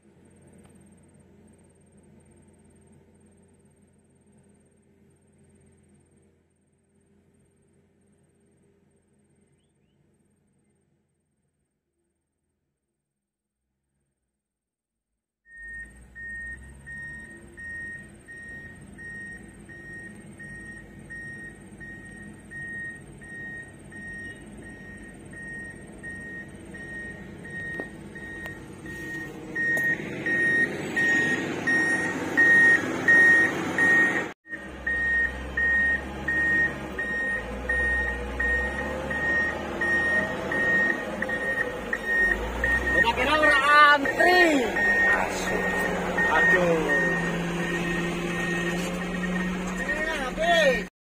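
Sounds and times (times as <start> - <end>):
diesel engine rumble: 0.0 - 11.4, 15.5 - 50.9
reversing alarm beeps: 15.5 - 50.6.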